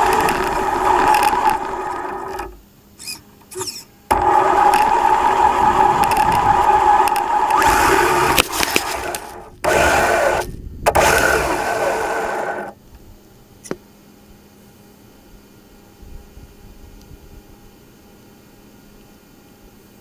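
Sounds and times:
electric motor whining: 0:00.0 - 0:12.8.

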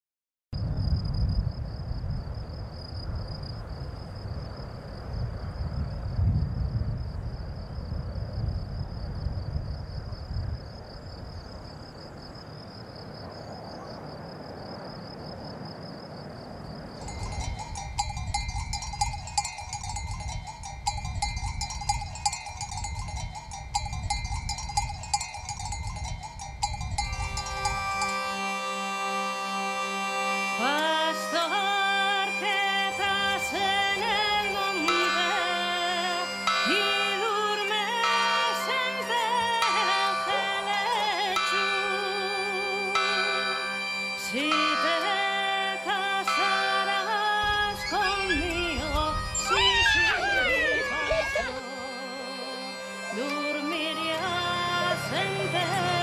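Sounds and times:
wind rumble on microphone: 0:00.6 - 0:13.2, 0:14.4 - 0:28.0, 0:47.4 - 0:50.0
insects trilling: 0:00.6 - 0:56.0
sheep bells clanking: 0:17.0 - 0:29.0, 0:33.3 - 0:51.5, 0:52.4 - 0:53.6
drone music with melody: 0:26.0 - 0:56.0.

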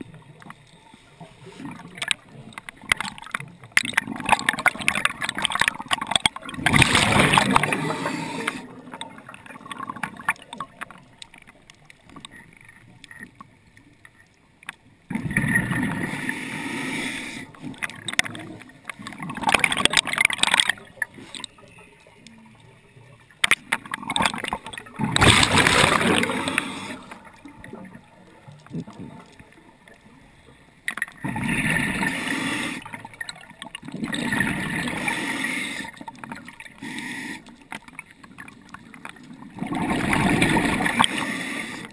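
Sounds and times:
muffled underwater rushing and gurgling: 0:00.0 - 0:41.9
water hiss: 0:06.9 - 0:08.9, 0:15.9 - 0:17.8, 0:25.2 - 0:27.3, 0:31.5 - 0:33.1, 0:34.6 - 0:37.7, 0:39.8 - 0:41.9.

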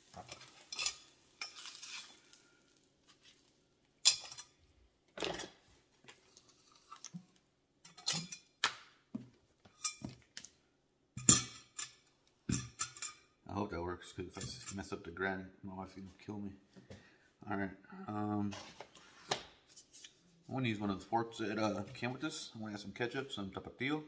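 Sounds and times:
spatula scraping a frying pan: 0:00.0 - 0:04.6.

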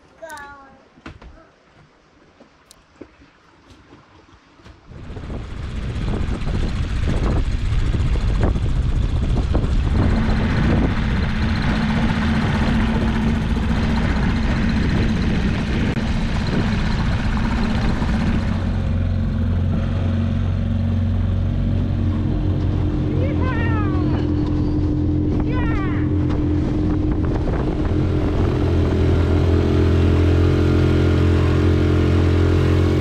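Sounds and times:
wind: 0:00.0 - 0:33.0
boat engine drone: 0:04.8 - 0:33.0
water rushing: 0:09.2 - 0:33.0.

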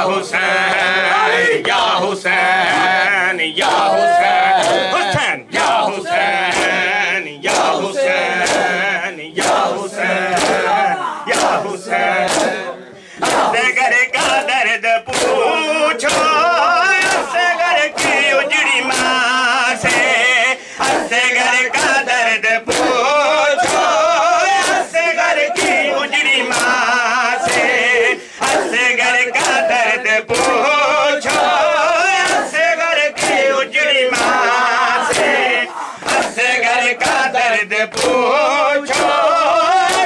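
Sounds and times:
crowd slapping chests in unison: 0:00.0 - 0:40.0
men singing a mourning chant: 0:00.0 - 0:40.0.

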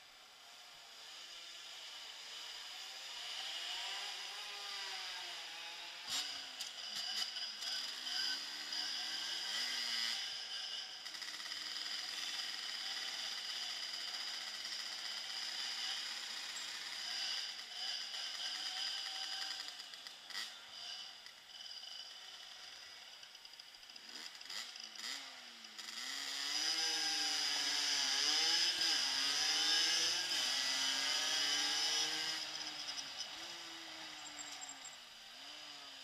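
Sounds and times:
motorbike engine accelerating: 0:24.0 - 0:36.0.

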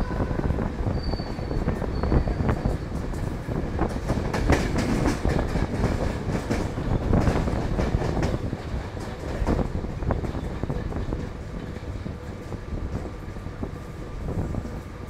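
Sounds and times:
train rumble and wind: 0:00.0 - 0:15.0
wheels clacking over rail joints: 0:02.7 - 0:13.1.

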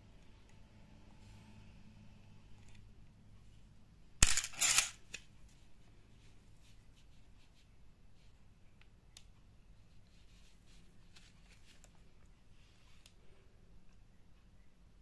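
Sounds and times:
camera shutter click: 0:04.2 - 0:05.2.

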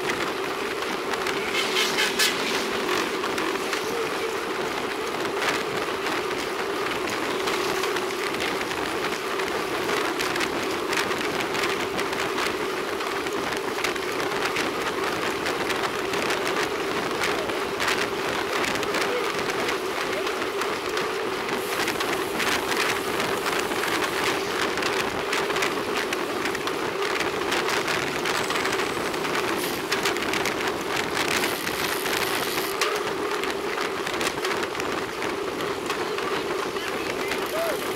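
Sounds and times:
bicycle tyres on road: 0:00.0 - 0:37.9
constant hum: 0:00.0 - 0:37.9
wind noise: 0:00.0 - 0:37.9.

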